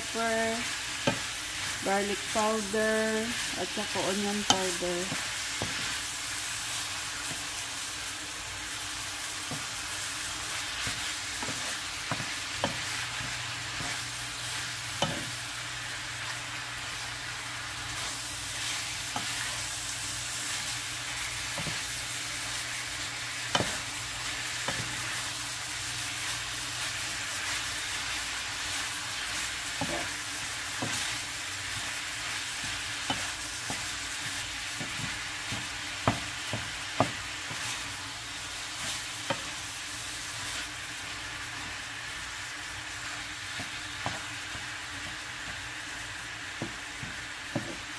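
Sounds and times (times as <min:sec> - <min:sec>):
meat sizzling in a frying pan: 0:00.0 - 0:47.9
spatula scraping a pan: 0:17.8 - 0:22.2.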